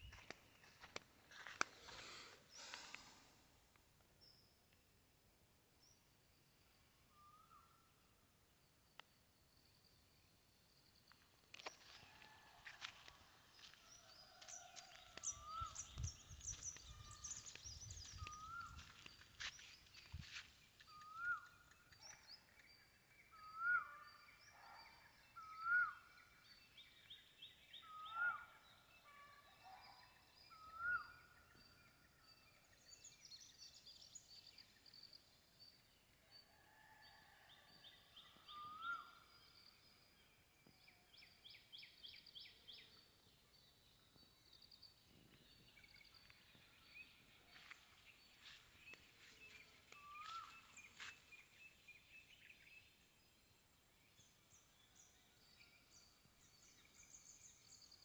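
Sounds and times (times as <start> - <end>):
small birds chirping and trilling: 13.6 - 29.0.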